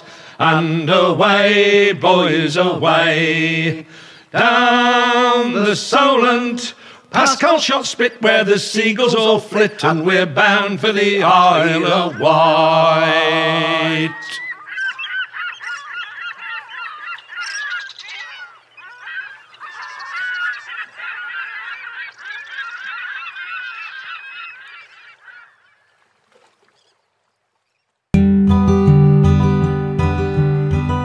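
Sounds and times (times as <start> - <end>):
person singing folk song: 0.0 - 14.4
geese honking: 9.6 - 26.0
acoustic guitar music: 28.2 - 31.0.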